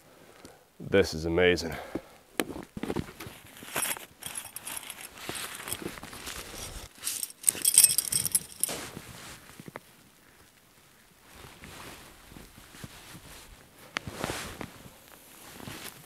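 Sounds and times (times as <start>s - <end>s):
clothing rustle: 2.5s - 16.0s
small metal gear clinking: 3.6s - 8.8s.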